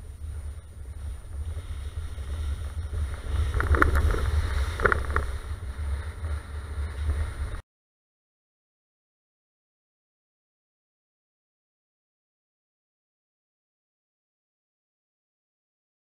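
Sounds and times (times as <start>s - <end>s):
low wind rumble: 0.0s - 7.6s.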